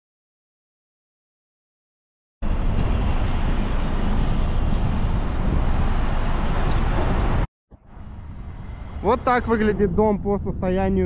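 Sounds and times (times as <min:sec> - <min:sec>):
road traffic rumble: 0:02.4 - 0:11.0.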